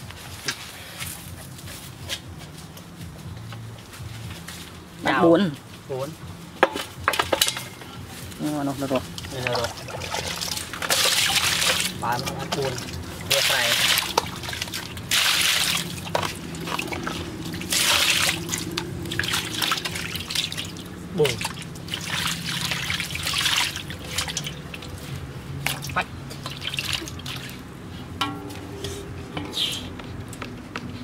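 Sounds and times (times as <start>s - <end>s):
water splashing in a metal basin: 8.8s - 28.6s
hands scrubbing: 8.9s - 25.1s.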